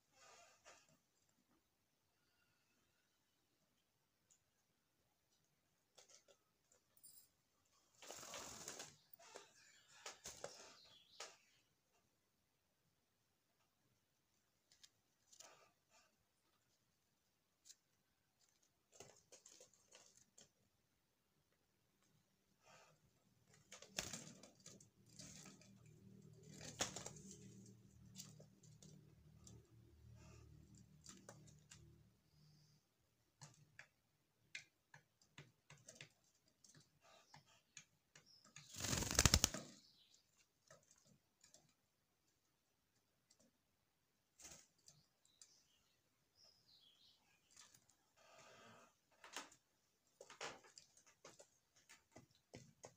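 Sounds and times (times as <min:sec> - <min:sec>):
doves pecking on wooden floor: 0:05.2 - 0:06.9, 0:13.5 - 0:39.7, 0:40.3 - 0:52.9
wing flaps: 0:38.7 - 0:39.8.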